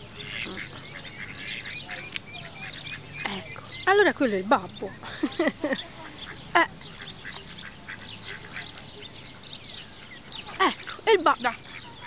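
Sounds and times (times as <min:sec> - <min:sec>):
ducklings peeping: 0:00.0 - 0:12.0
duck quacks: 0:00.2 - 0:03.5.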